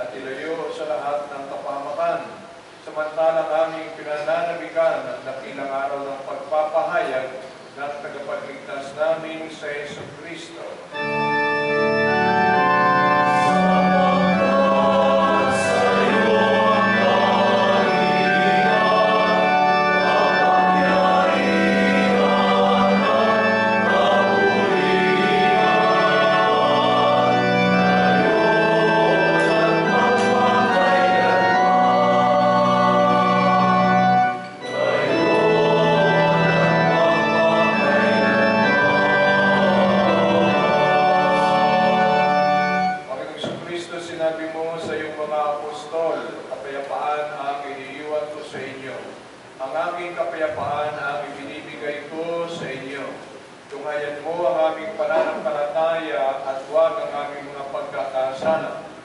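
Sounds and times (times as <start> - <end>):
church organ chords: 9.5 - 46.5
choir singing: 11.8 - 43.0.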